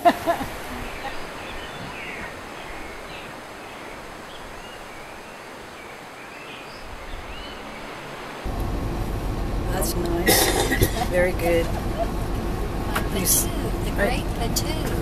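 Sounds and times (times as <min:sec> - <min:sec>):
small birds chirping: 0:00.6 - 0:08.5.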